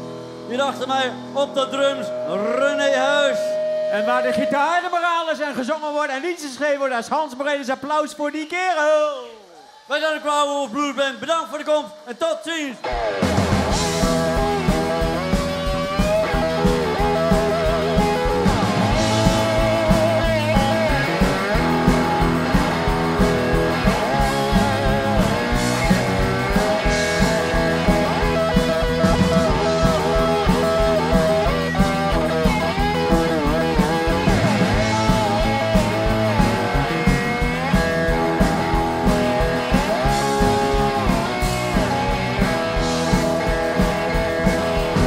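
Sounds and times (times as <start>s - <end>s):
bass guitar: 0.0s - 4.6s, 12.8s - 45.0s
electric guitar lead: 0.0s - 5.2s, 12.8s - 45.0s
steady drum beat: 12.9s - 45.0s.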